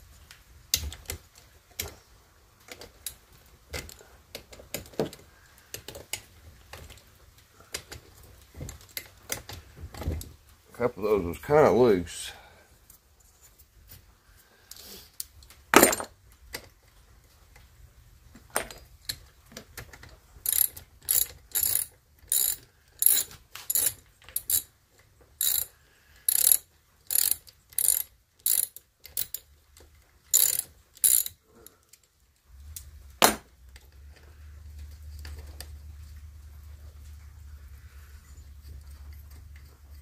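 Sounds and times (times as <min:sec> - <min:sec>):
ratchet wrench clicking: 0:20.4 - 0:24.7, 0:25.4 - 0:25.7, 0:26.3 - 0:29.4, 0:30.3 - 0:31.4.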